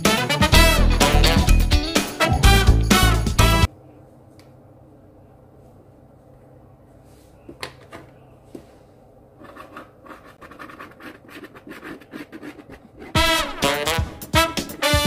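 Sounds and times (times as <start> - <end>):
pen scratching on cardboard: 9.4 - 13.4.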